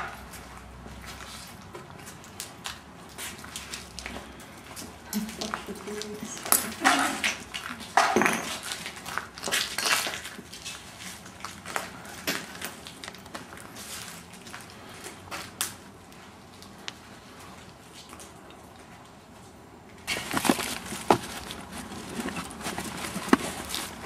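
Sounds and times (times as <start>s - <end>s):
footsteps on gritty floor: 20.1s - 24.0s.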